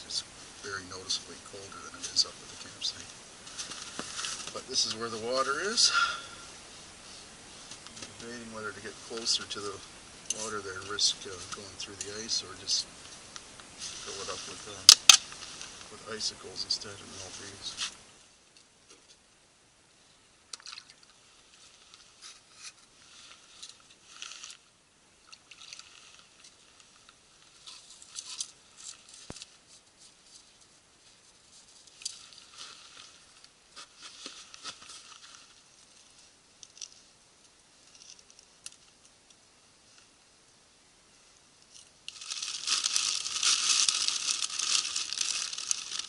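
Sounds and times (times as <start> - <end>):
ice and snow crunching: 0.0 - 18.1, 21.5 - 24.7, 42.1 - 46.0.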